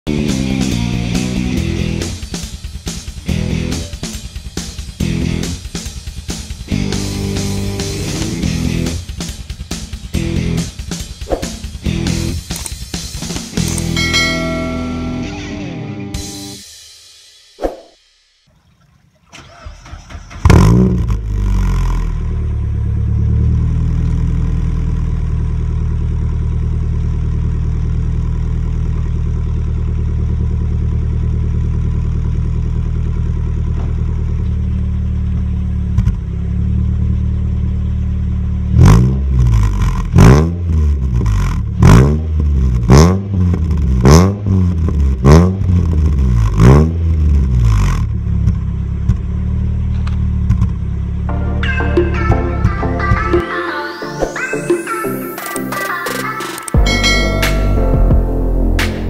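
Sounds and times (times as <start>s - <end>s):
car engine idling: 0.6s - 15.2s, 19.3s - 51.3s.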